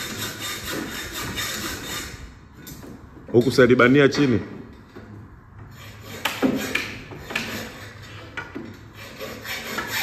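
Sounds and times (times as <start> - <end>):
hand tools knocking on wood: 6.2 - 7.6.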